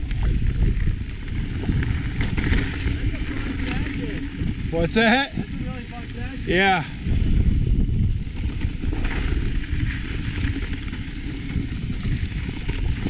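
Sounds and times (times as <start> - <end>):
bike and stones rattling: 0.0 - 13.0
bike tyres rumbling on dirt: 0.0 - 13.0
rushing air: 1.8 - 8.0.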